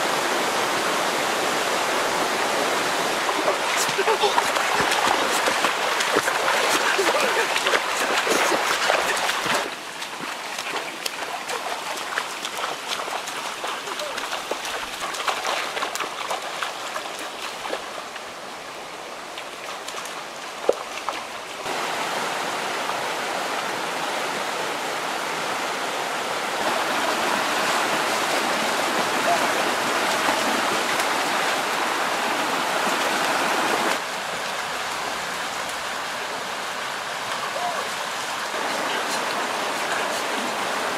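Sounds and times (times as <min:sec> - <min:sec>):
stream rushing over stones: 0:00.0 - 0:40.9
splashing of wading through water: 0:02.9 - 0:18.4, 0:19.2 - 0:21.8, 0:26.6 - 0:34.0.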